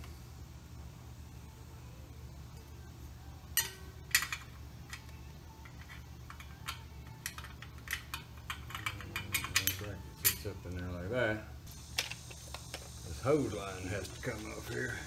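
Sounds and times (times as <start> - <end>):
steady low hum: 0.0 - 15.0
metal tools clinking: 3.6 - 10.7.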